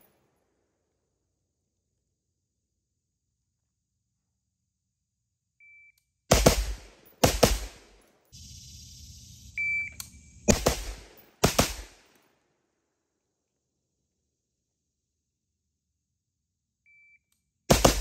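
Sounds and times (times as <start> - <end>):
rifle shots with ringing tail: 6.3 - 8.0, 10.2 - 12.1, 17.7 - 18.0
electronic shot-timer beep: 8.6 - 10.5.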